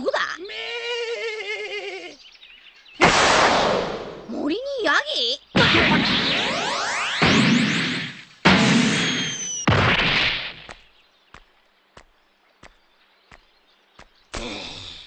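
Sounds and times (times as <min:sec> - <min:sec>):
cartoon crash: 0:03.0 - 0:04.2, 0:05.6 - 0:10.7
cartoon whoosh with falling whistle: 0:05.8 - 0:08.1, 0:08.8 - 0:09.7.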